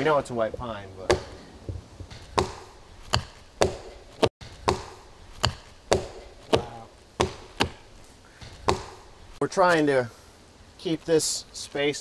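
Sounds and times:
axes chopping into tree trunk: 0:01.0 - 0:09.1.

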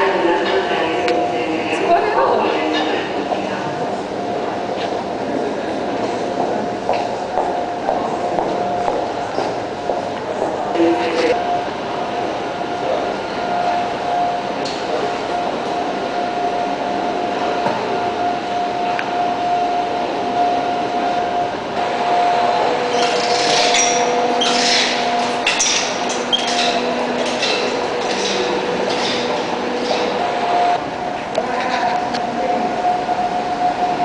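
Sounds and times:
steady hum with held tone: 0:00.0 - 0:34.0
high-pitched clatter and squeaks: 0:22.9 - 0:30.1.

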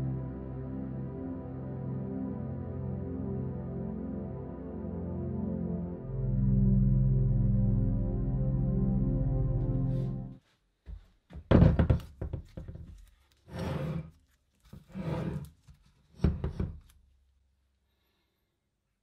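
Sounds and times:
background music: 0:00.0 - 0:10.4.

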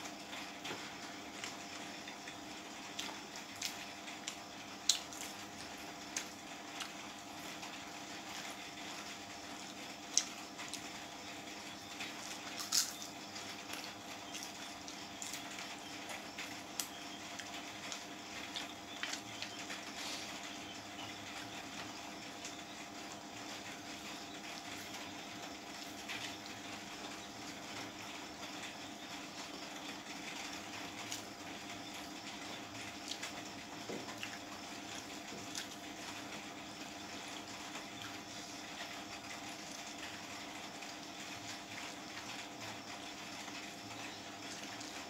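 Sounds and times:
faint steady hum: 0:00.0 - 0:45.0
chewing: 0:12.0 - 0:20.4, 0:34.1 - 0:35.9.

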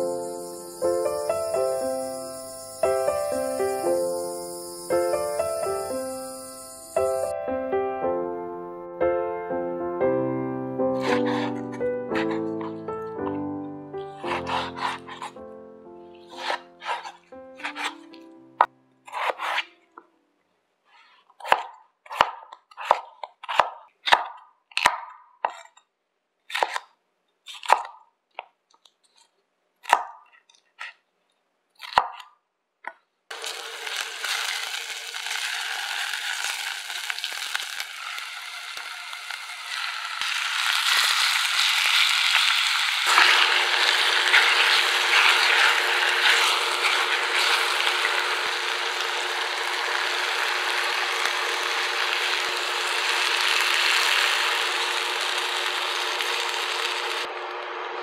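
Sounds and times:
chicken sizzling in a pot: 0:00.0 - 0:07.4, 0:11.0 - 0:12.6, 0:33.3 - 0:58.0
knife chopping on wooden board: 0:11.0 - 0:12.6, 0:14.2 - 0:15.4, 0:16.3 - 0:18.0, 0:19.1 - 0:19.7, 0:21.4 - 0:25.7, 0:26.5 - 0:26.8.

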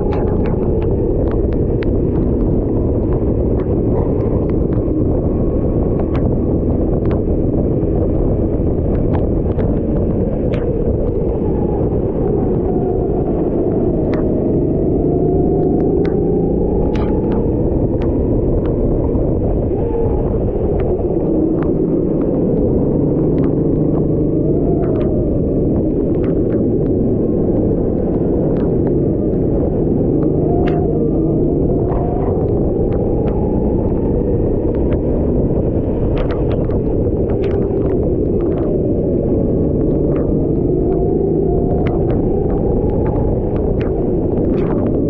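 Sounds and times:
kart engine rumbling: 0:00.0 - 0:45.0
sharp ticks: 0:15.3 - 0:19.5, 0:20.7 - 0:45.0
short ticks and crackles: 0:35.8 - 0:38.8.

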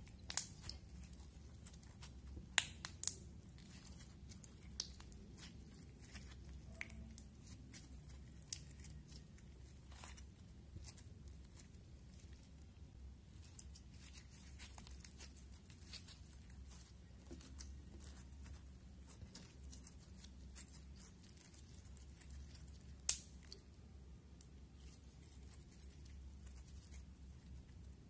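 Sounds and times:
slime crackling and clicking: 0:00.0 - 0:01.2, 0:01.8 - 0:09.2, 0:19.1 - 0:23.6
slime popping: 0:01.8 - 0:09.2.

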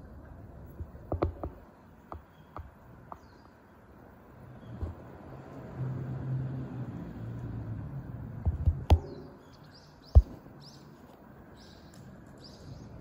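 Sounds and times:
sharp knock: 0:10.1 - 0:10.4.

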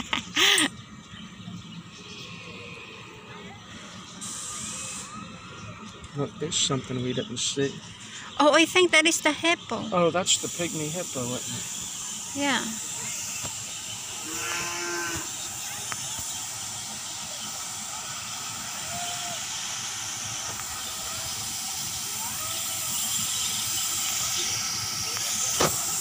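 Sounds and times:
high-pitched hiss: 0:03.7 - 0:05.4, 0:07.7 - 0:26.0.

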